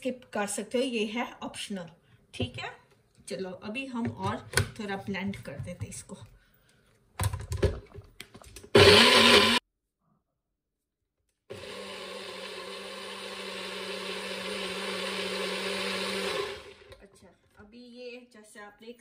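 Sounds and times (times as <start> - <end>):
blender motor running: 8.7 - 9.6, 11.5 - 17.0.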